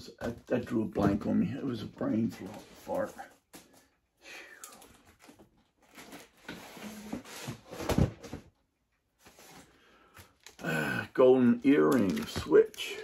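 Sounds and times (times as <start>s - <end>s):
records in plastic sleeves rustling: 11.5s - 13.0s.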